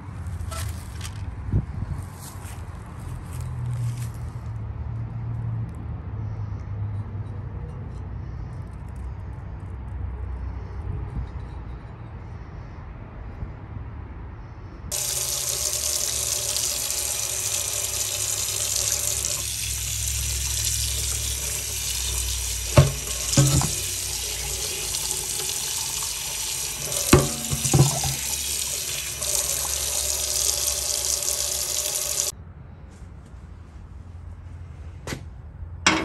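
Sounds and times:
tap water running into metal sink: 0:14.9 - 0:32.3.

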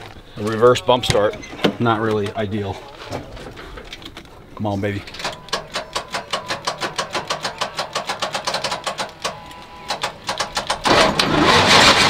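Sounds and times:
diesel engine cranking: 0:05.1 - 0:12.0.

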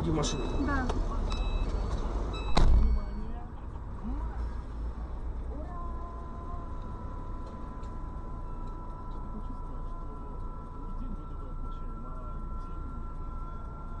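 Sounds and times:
car idling: 0:00.0 - 0:14.0
street traffic: 0:00.0 - 0:14.0
faint high whine: 0:06.3 - 0:14.0.

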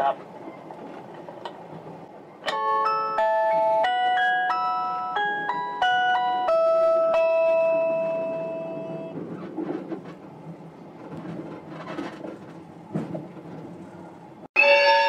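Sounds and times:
train interior rumble: 0:00.0 - 0:15.0
bell-like announcement chime: 0:14.6 - 0:15.0.

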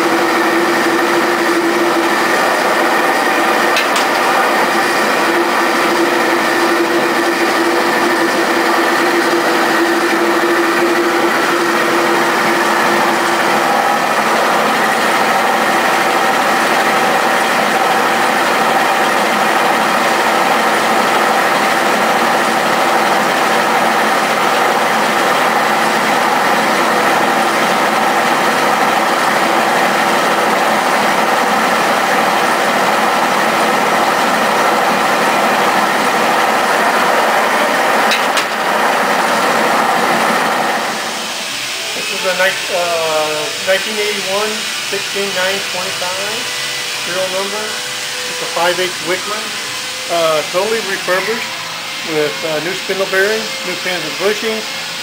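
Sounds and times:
screw machine clatter and hum: 0:00.0 - 0:42.6
machine whines: 0:00.0 - 0:55.0.

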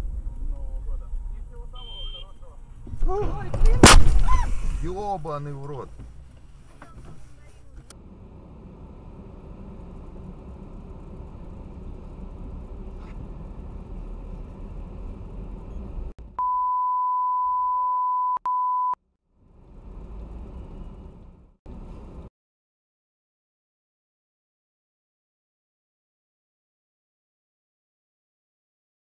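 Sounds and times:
car cabin rumble: 0:00.0 - 0:16.6
censor bleep: 0:01.8 - 0:02.4, 0:16.4 - 0:19.0.

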